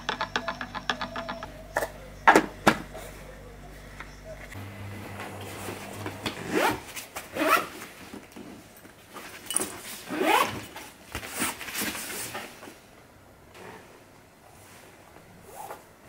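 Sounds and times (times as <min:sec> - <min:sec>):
backpack zipper being pulled: 0:05.8 - 0:07.8, 0:10.1 - 0:10.6.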